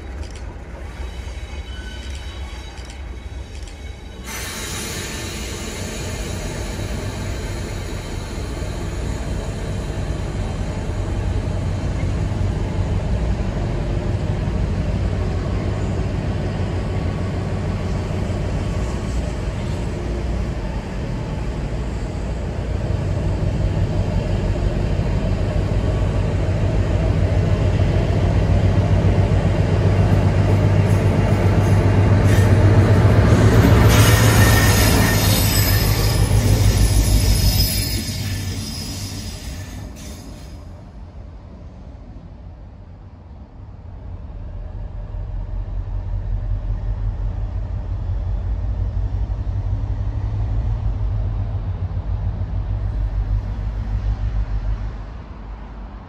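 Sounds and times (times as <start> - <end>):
wheels squealing on rails: 0.0 - 11.2, 30.6 - 40.8
diesel locomotive engine drone: 0.0 - 56.0
hiss: 4.2 - 9.4.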